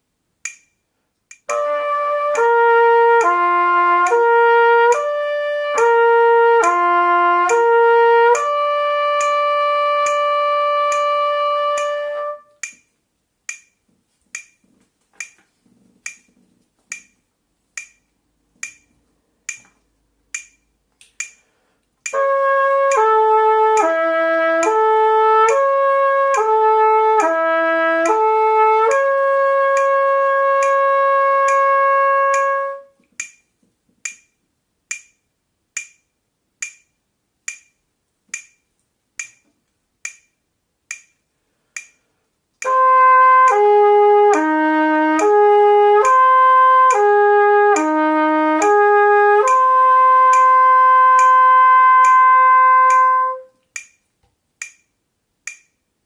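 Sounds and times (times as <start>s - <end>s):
metronome clicks: 0.4s - 55.9s
trumpet playing slurred notes: 1.5s - 12.6s, 22.1s - 32.9s, 42.6s - 53.6s.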